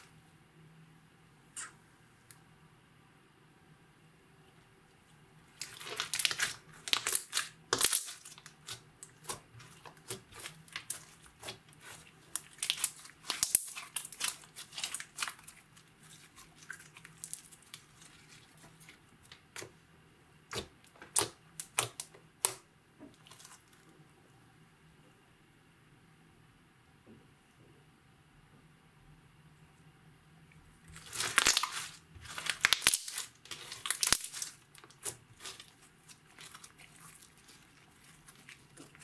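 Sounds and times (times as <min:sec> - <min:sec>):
slime crackling and popping: 0:05.6 - 0:19.7, 0:20.5 - 0:22.6, 0:30.9 - 0:39.0.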